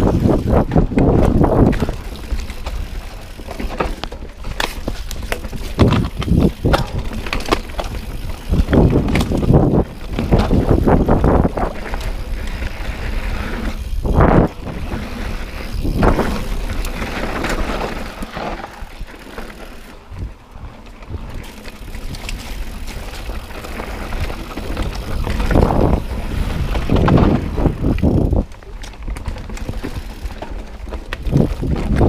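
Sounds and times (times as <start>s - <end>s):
wind on microphone: 0.0s - 2.2s, 8.1s - 17.1s, 24.0s - 28.5s
bike rattling over bumps: 0.0s - 32.0s
tyres rolling on dirt: 0.0s - 32.0s.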